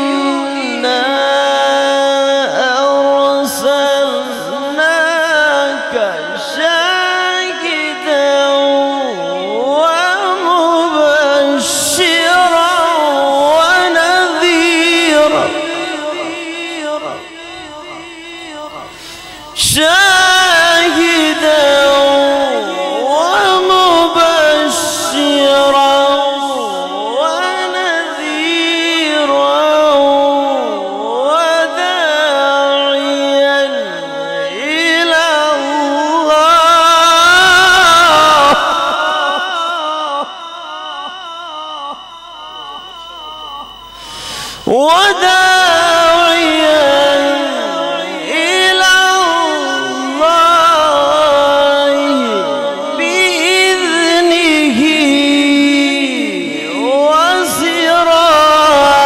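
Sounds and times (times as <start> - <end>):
man reciting melodically: 0.0 - 59.0.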